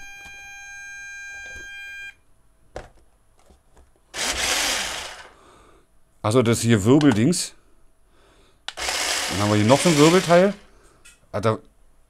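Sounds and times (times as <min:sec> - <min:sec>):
toy truck motor whirring: 0:04.2 - 0:05.4, 0:08.7 - 0:10.6.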